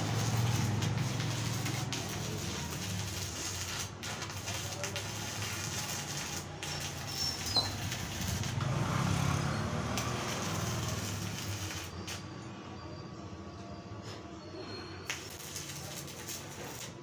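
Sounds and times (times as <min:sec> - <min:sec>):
passing vehicle engine: 0:00.0 - 0:04.0, 0:04.8 - 0:12.7
welding arc crackling and popping: 0:00.0 - 0:12.3, 0:15.1 - 0:17.0.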